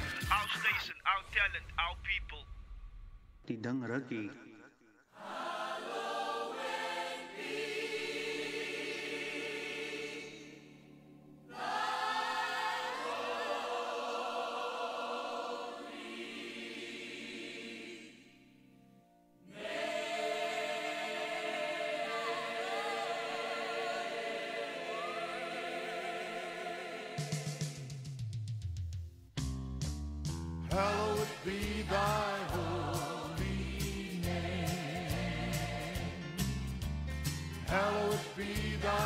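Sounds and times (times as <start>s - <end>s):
choir singing: 5.1s - 18.7s, 19.4s - 28.2s, 30.7s - 36.5s, 37.6s - 39.0s.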